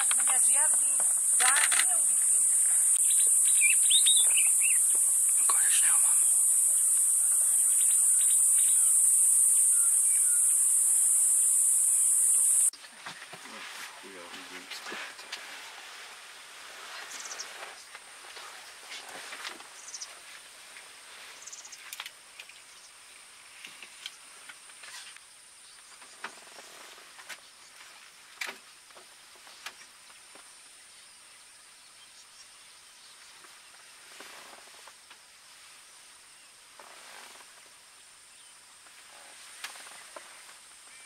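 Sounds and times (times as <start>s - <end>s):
sharp clicks: 0.0s - 3.2s
high-pitched whine: 0.0s - 12.7s.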